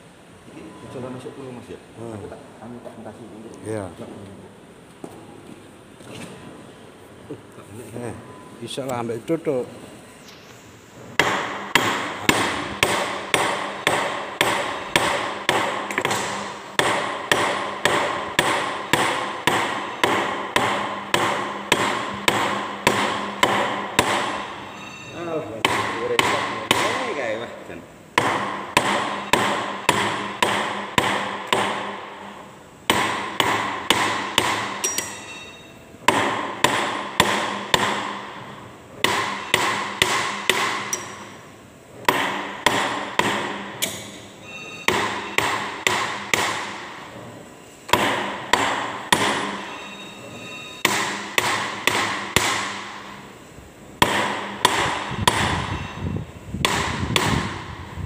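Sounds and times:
hammer striking steel: 11.2s - 27.4s, 28.2s - 47.1s, 47.9s - 53.4s, 54.0s - 57.9s.

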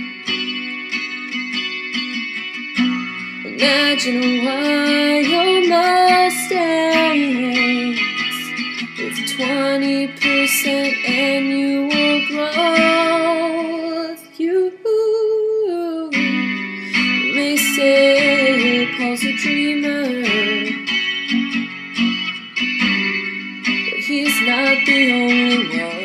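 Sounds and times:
guitar chords: 0.0s - 26.0s
person singing: 3.3s - 20.9s, 23.8s - 26.0s.

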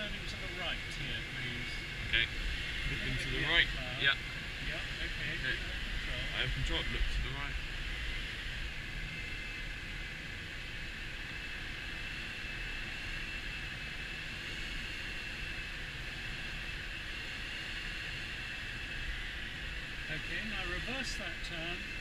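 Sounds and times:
airflow rushing over glider canopy: 0.0s - 22.0s.

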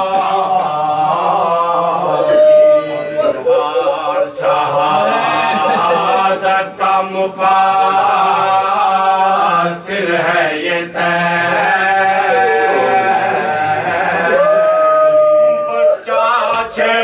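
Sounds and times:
men chanting: 0.0s - 17.0s.

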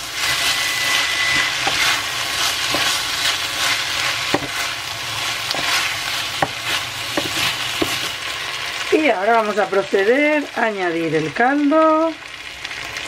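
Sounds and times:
food sizzling in pan: 0.0s - 13.0s
wooden spoon knocking pan: 1.4s - 2.0s, 4.2s - 4.6s, 5.4s - 8.1s.

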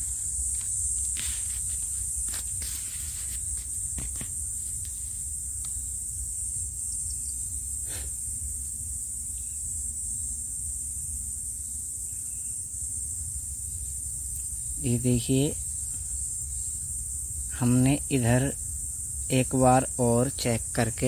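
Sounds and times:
high hiss: 0.0s - 9.6s.

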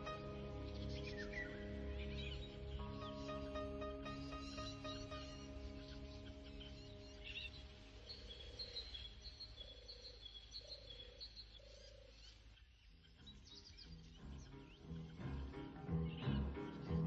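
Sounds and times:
soft background music: 0.0s - 9.5s, 13.2s - 17.0s
frog-like pulsed calls: 0.0s - 10.1s
faint bird chirping: 0.0s - 17.0s.

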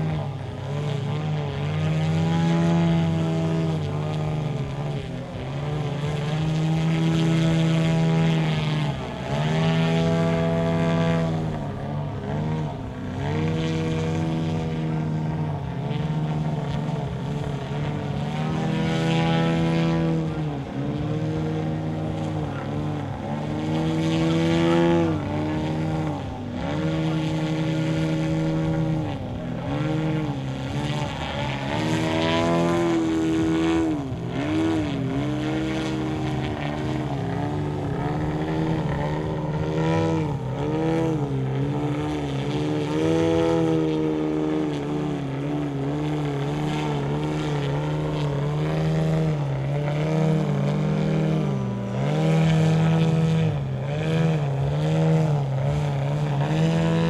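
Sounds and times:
model plane motor and propeller: 0.0s - 57.0s.

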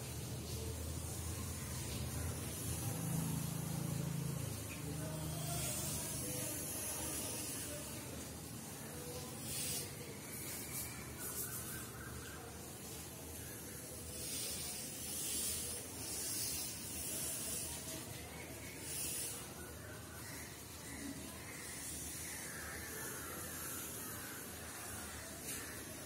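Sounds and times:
faint room noise: 0.0s - 26.0s
chalk scratching on blackboard: 14.1s - 18.0s.

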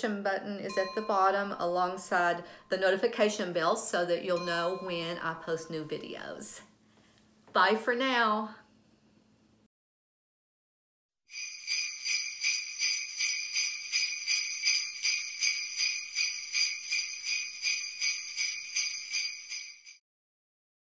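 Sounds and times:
jingle bells shaken: 11.3s - 20.0s.

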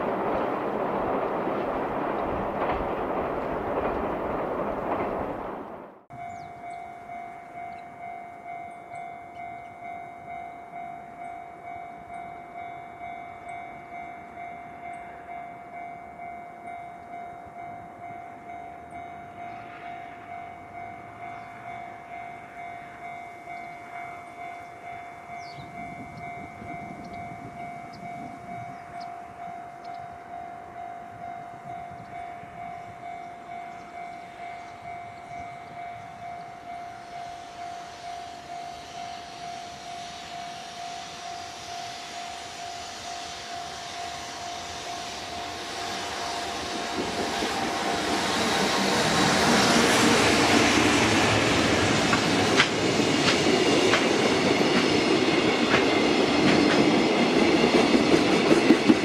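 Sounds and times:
level crossing bell ringing: 6.1s - 19.4s.

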